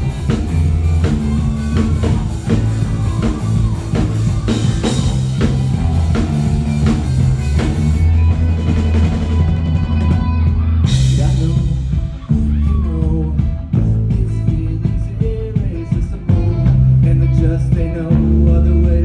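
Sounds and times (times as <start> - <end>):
live rock band playing: 0.0 - 19.0.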